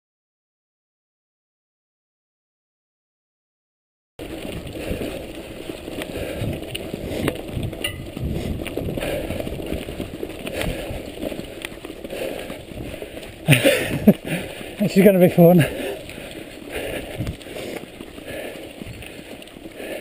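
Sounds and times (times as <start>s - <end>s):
bike knocking and rattling: 4.2s - 20.0s
bike tyres rolling over dirt: 4.2s - 20.0s.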